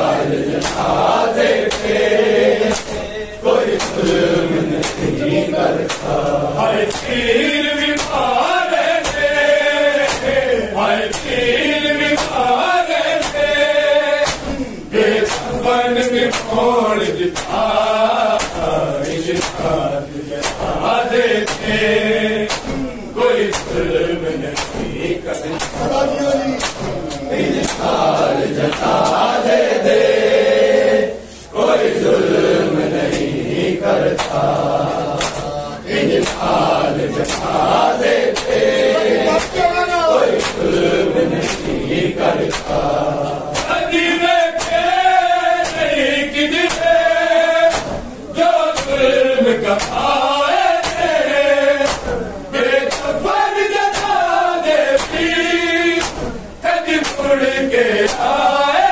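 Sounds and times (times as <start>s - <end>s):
men chanting in unison: 0.0s - 58.9s
hands slapping bare chests: 0.5s - 10.4s, 11.1s - 15.6s, 16.3s - 16.6s, 17.3s - 21.8s, 22.5s - 26.0s, 26.6s - 29.4s, 34.2s - 35.5s, 36.1s - 43.8s, 44.6s - 47.0s, 47.7s - 48.1s, 48.8s - 49.1s, 49.8s - 51.2s, 51.8s - 52.1s, 52.9s - 53.2s, 53.8s - 55.2s, 56.0s - 56.3s, 57.0s - 57.3s.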